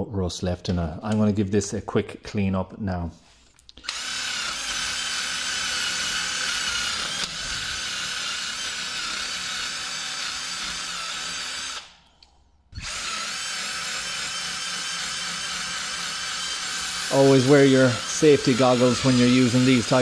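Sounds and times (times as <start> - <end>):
power tool whining: 3.8 - 12.1, 12.7 - 20.0.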